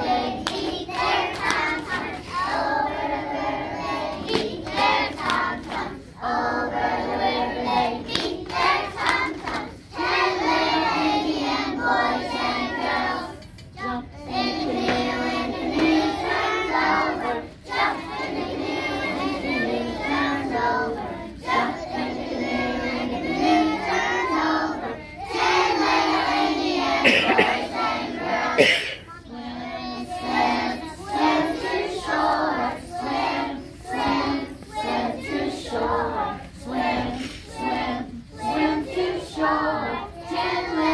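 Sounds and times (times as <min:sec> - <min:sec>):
children singing in unison: 0:00.0 - 0:40.9.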